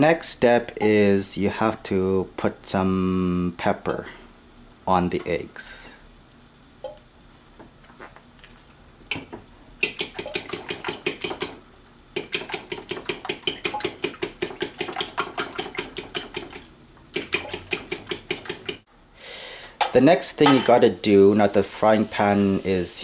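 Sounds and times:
spoon beating eggs in bowl: 9.8 - 11.6, 12.2 - 18.8.

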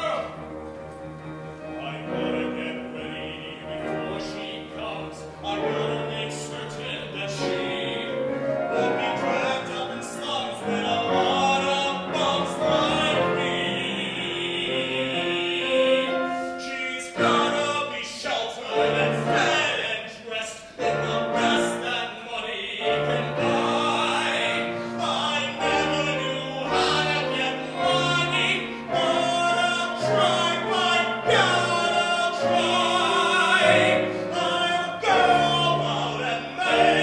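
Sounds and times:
man singing operatic baritone: 0.0 - 0.5, 1.6 - 37.0
instrumental accompaniment: 0.0 - 18.0.

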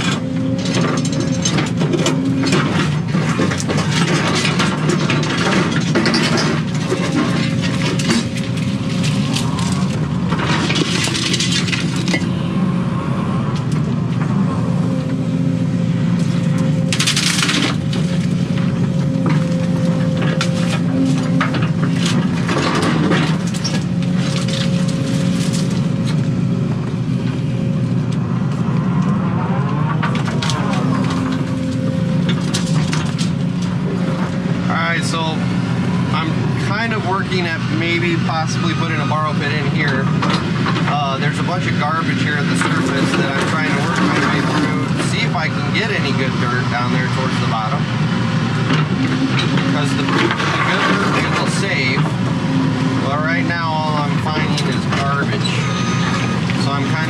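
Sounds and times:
diesel engine with whine: 0.0 - 57.0
branches crackling and snapping: 6.6 - 12.5, 15.9 - 36.2.

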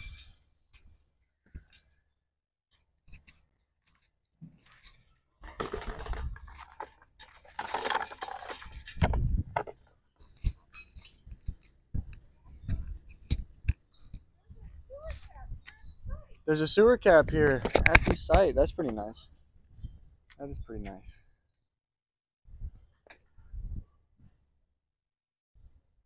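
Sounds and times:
chains jangling and clinking: 5.6 - 9.0.

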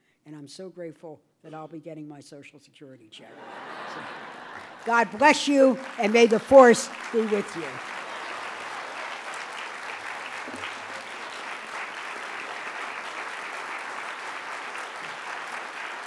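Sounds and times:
audience applauding: 3.4 - 16.0.

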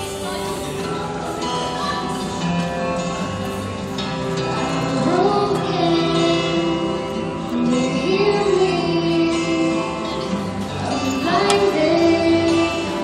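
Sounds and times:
young women singing: 4.9 - 6.8, 7.6 - 10.1, 10.8 - 13.0.

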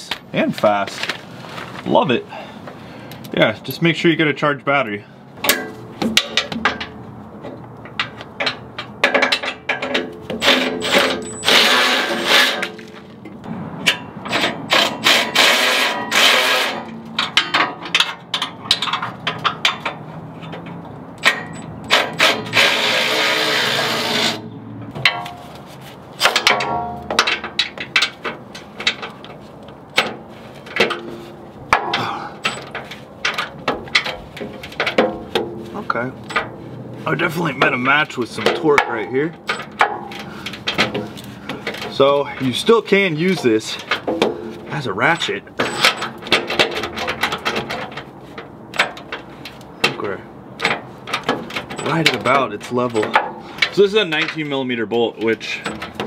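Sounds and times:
ratchet head clicks and clunks: 13.3 - 25.4.

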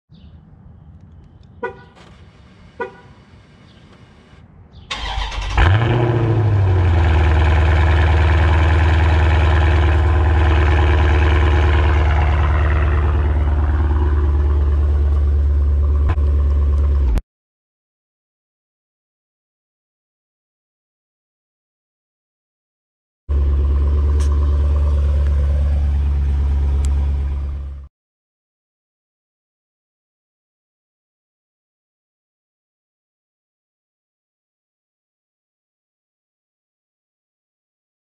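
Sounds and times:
car engine starting and idling: 2.0 - 17.2, 23.3 - 27.9.

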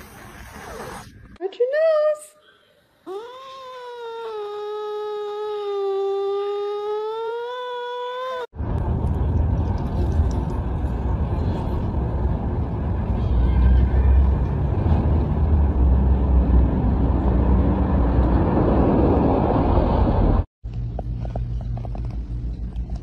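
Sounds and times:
low outdoor rumbling: 8.6 - 23.0.

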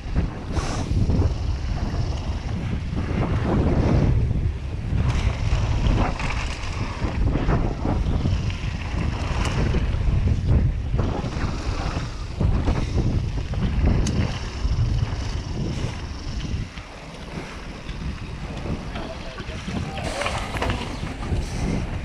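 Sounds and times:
mountain bike rolling on dirt: 0.0 - 22.0
wind buffeting microphone: 0.0 - 22.0
bike knocks and rattles: 4.8 - 22.0.

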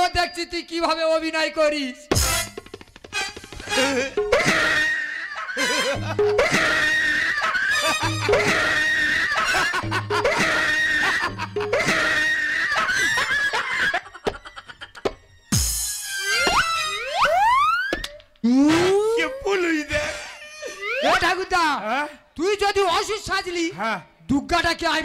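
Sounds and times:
men laughing theatrically: 3.6 - 15.4.

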